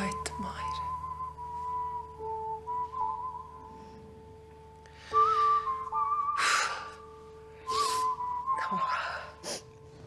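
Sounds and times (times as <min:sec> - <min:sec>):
high whistle-like melody: 0:00.0 - 0:04.3, 0:04.9 - 0:09.5
low steady drone: 0:00.0 - 0:10.0.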